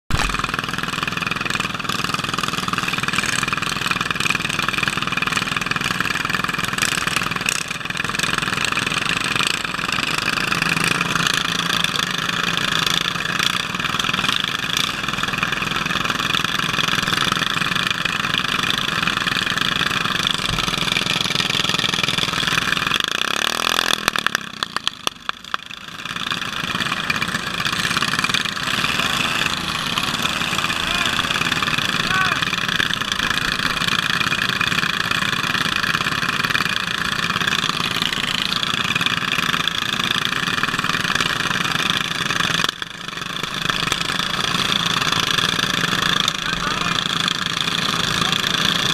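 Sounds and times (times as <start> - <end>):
lawn tractor engines idling: 0.1 - 48.9.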